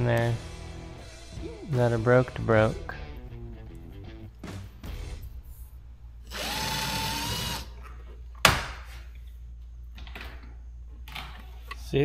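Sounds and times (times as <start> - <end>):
cordless drill running: 6.3 - 7.7.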